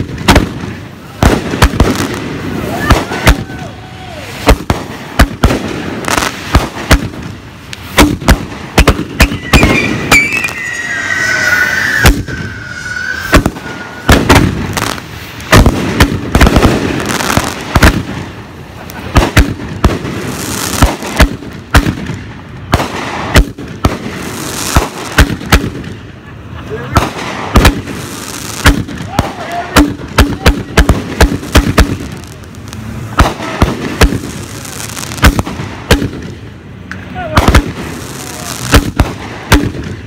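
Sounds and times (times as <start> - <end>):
fireworks bangs: 0.0 - 40.0
fireworks crackle: 0.0 - 40.0
high falling tone: 9.2 - 14.2.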